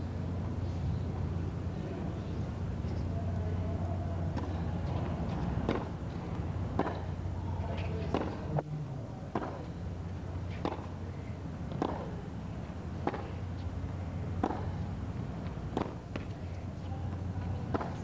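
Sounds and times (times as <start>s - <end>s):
tennis ball hit by racket: 4.3s - 8.5s, 9.3s - 9.7s, 10.5s - 11.0s, 11.7s - 12.2s, 13.0s - 13.7s, 14.3s - 16.4s, 17.7s - 18.0s.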